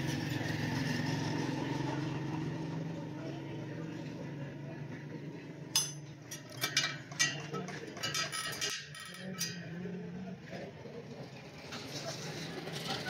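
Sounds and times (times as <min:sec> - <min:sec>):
wrench clinking on metal spokes: 0:05.7 - 0:10.1.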